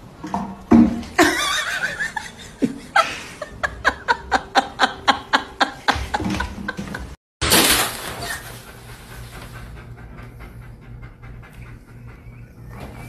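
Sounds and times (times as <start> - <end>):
person laughing: 1.2 - 7.2.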